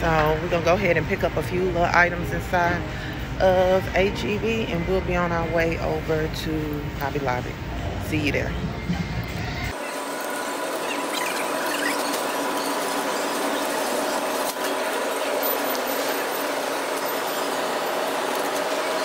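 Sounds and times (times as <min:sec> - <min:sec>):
shopping cart wheels rattling and squealing: 0:00.0 - 0:07.4, 0:09.7 - 0:19.0
steady hum: 0:00.0 - 0:19.0.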